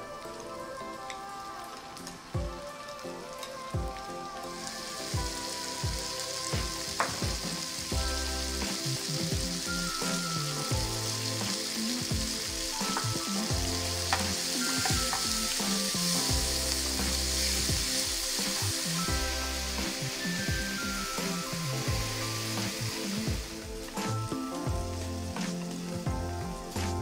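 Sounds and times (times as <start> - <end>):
food sizzling in frying pan: 0.0 - 27.0.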